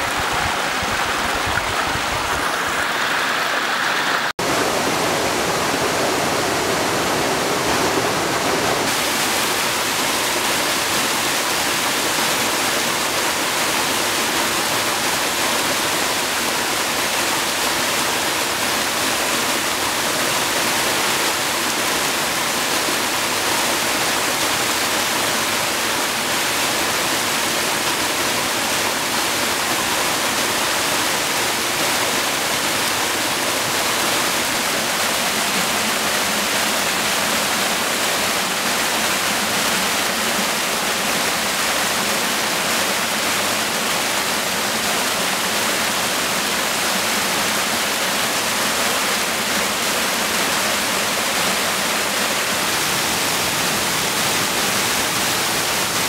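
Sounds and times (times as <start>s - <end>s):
waterfall pouring: 0.0s - 56.0s.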